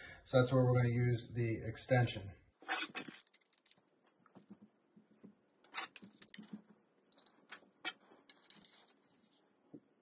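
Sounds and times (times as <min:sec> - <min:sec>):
metal tools clicking and scraping: 0:02.6 - 0:03.9, 0:05.7 - 0:09.4.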